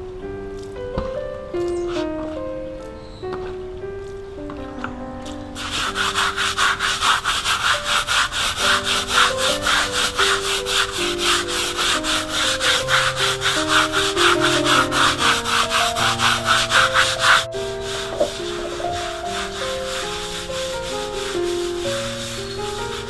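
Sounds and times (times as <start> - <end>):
background music: 0.0 - 23.0
brush scrubbing wet concrete: 5.6 - 23.0.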